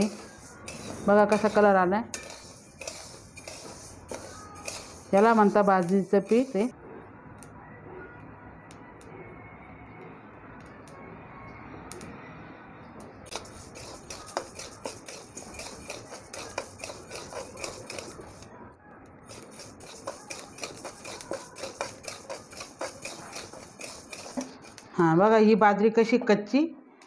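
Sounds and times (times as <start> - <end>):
grains rattling in a pan: 0.0 - 6.7, 13.3 - 18.5, 19.3 - 24.9
grains roasting hiss: 0.0 - 6.7, 13.3 - 18.5, 19.3 - 24.9
metal spatula scraping: 0.0 - 6.7, 13.2 - 18.6, 19.2 - 25.0.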